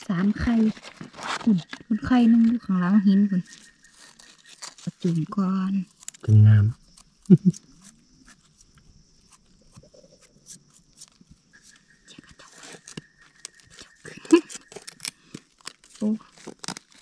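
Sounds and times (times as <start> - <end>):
dry leaves and twigs crackling: 0.1 - 17.0.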